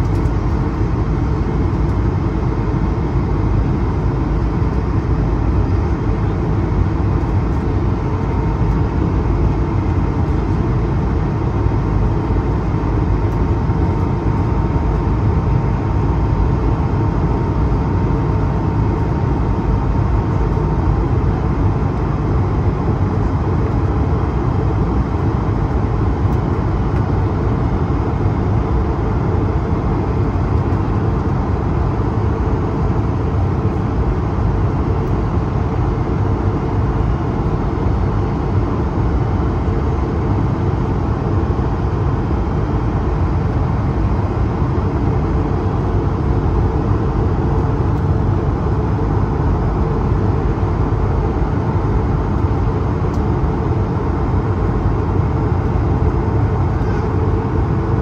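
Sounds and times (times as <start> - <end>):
airplane cabin noise: 0.0 - 58.0.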